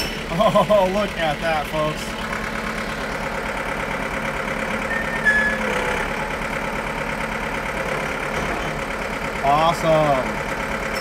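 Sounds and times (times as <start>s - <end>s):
tractor diesel engine idling: 0.0s - 11.0s
short high tone: 4.9s - 5.8s.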